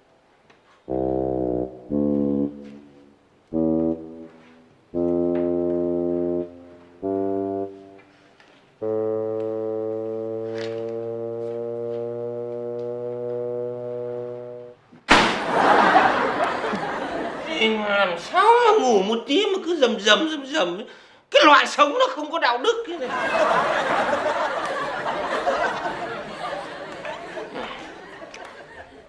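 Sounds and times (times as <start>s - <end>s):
background music held notes: 0.9s - 14.8s.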